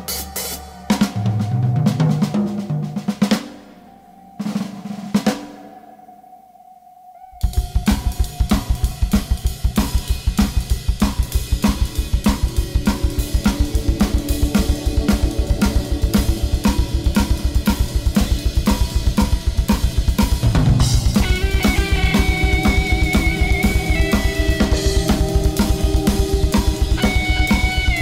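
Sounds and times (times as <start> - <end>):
held synth tones: 0.0 - 28.0
drum kit fast beat: 7.4 - 28.0
pulsing bass line: 7.5 - 28.0.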